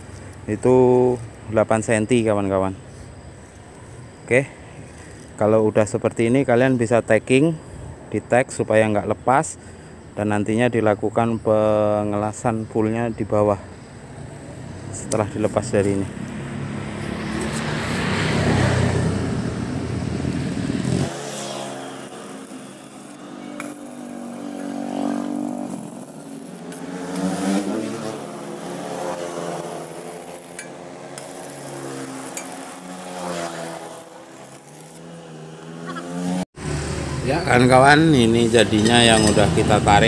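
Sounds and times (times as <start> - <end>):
vehicle engines revving and passing: 13.3 - 40.0.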